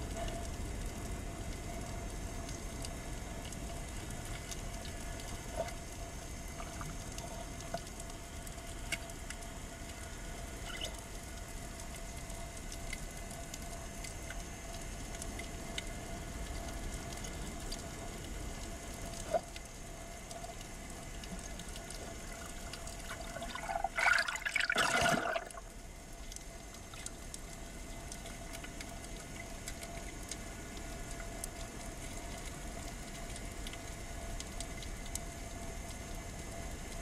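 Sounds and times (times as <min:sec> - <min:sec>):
faint steady tone: 0:00.0 - 0:37.0
faint clicks: 0:06.6 - 0:23.2
churning water: 0:22.2 - 0:25.7.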